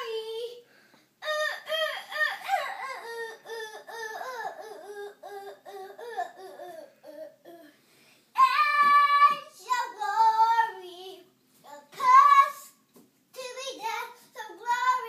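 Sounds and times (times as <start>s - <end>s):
child singing: 0.0s - 0.6s, 8.4s - 15.0s.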